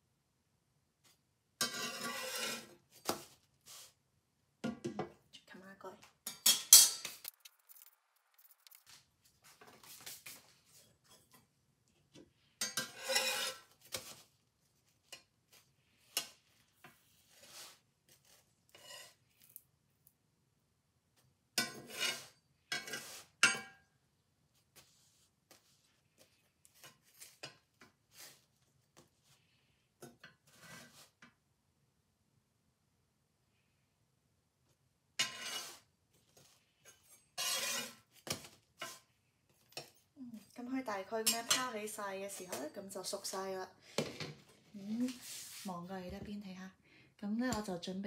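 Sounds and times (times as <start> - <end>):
spatula scraping cast-iron skillet: 1.6 - 2.9, 12.6 - 14.2, 15.0 - 19.4, 21.6 - 23.7, 35.2 - 35.9, 36.8 - 38.2, 38.8 - 39.1, 41.2 - 41.8.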